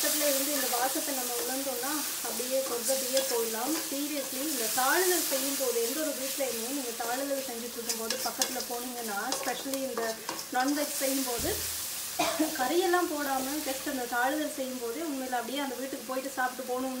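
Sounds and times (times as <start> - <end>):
onions sizzling in oil: 0.0 - 17.0
spatula scraping pan: 0.3 - 6.5, 7.3 - 11.7
spatula clicking against pan: 7.8 - 8.6.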